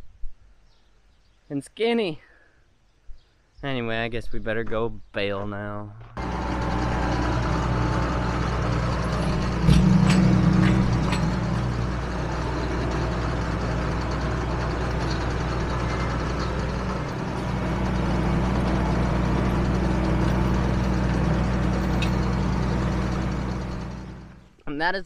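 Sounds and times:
tractor engine under load: 6.2s - 24.6s.

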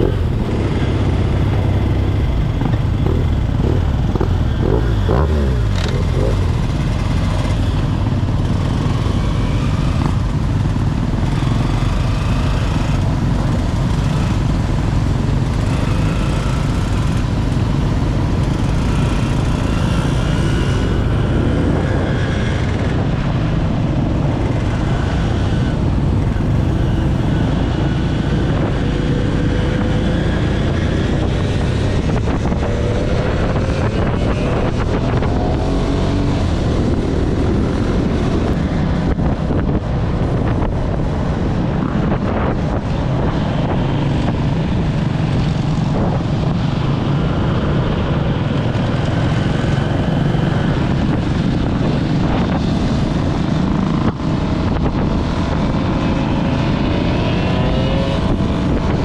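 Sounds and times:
motorcycle engines rumbling: 0.0s - 59.0s
wind buffeting microphone: 16.6s - 59.0s.

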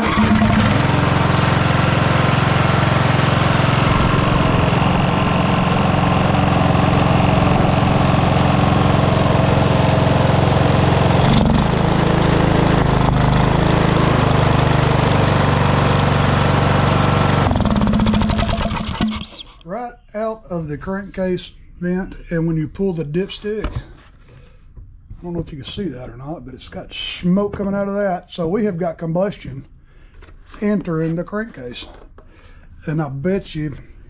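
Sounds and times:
riding mower engine running: 0.0s - 19.6s.

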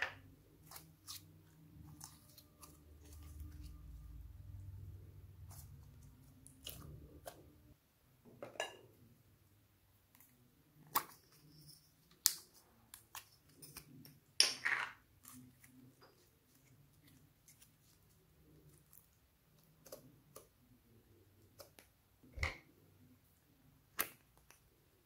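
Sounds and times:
slime squishing: 0.0s - 7.7s, 15.0s - 20.6s
noisy squelch: 0.3s - 7.8s.

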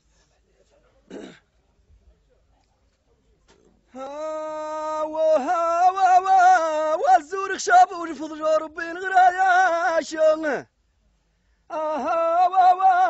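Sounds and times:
man singing solo: 4.0s - 10.6s, 11.7s - 13.0s.

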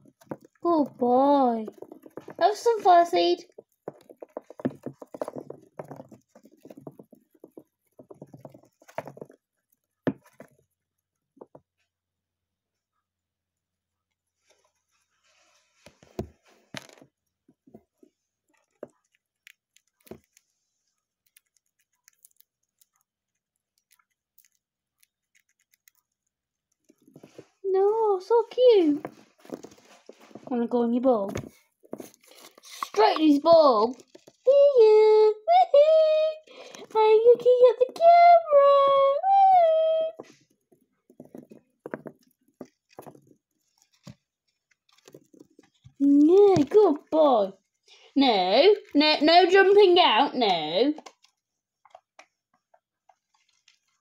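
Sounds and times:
hamster nibbling and cracking seeds: 0.0s - 12.4s, 16.6s - 35.1s, 36.4s - 48.0s, 50.9s - 54.0s.

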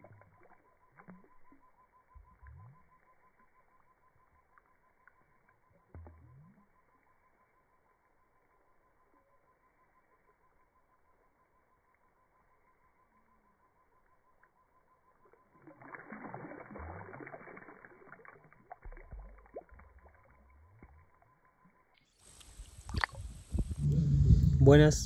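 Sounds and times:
fish splashing in water: 15.4s - 21.2s, 22.2s - 23.4s
faint steady whine: 19.0s - 25.0s
low thuds: 23.5s - 25.0s.

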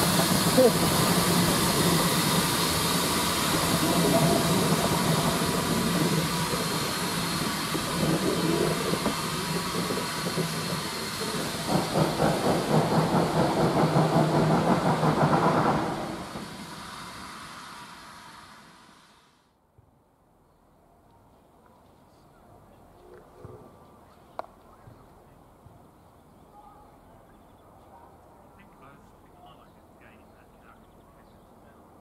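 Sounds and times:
locomotive exhaust beats: 0.0s - 18.6s
hiss of steam: 0.0s - 19.5s
steam locomotive pulling away: 0.0s - 19.5s.

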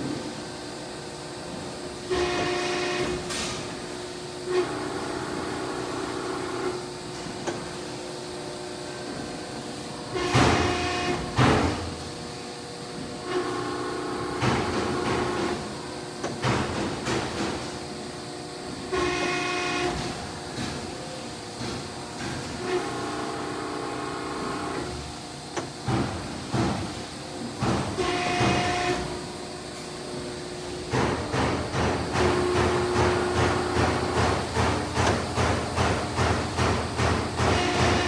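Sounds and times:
hydraulic press brake whining: 2.1s - 3.8s, 10.1s - 12.0s, 18.7s - 20.9s, 25.5s - 29.9s, 31.1s - 38.0s.

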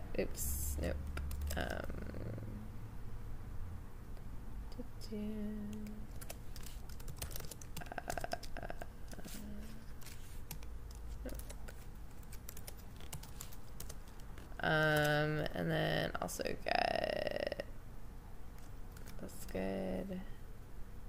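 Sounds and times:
typing on computer keyboard: 1.0s - 1.9s, 5.7s - 9.2s, 10.0s - 15.2s, 18.9s - 19.2s.

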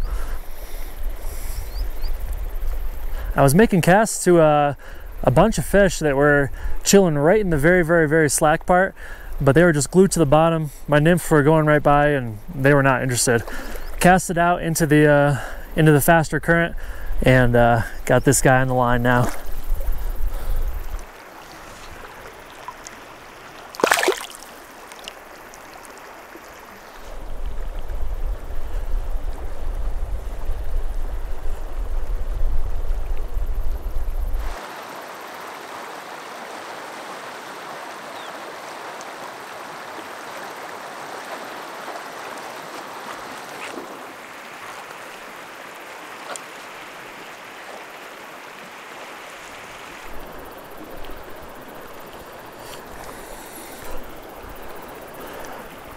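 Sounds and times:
rushing river over rocks: 23.0s - 25.1s
fish splashing into water: 23.6s - 26.0s.

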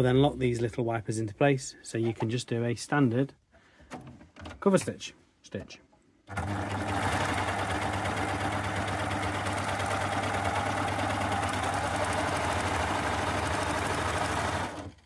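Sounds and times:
sewing machine motor hum: 6.3s - 15.0s.

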